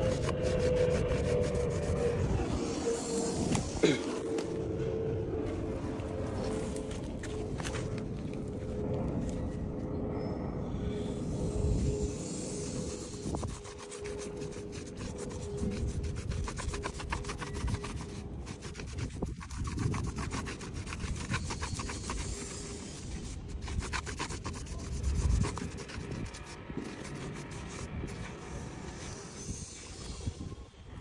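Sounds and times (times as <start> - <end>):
cloth rubbing on rubber tyre: 0.0 - 4.5, 11.8 - 30.2.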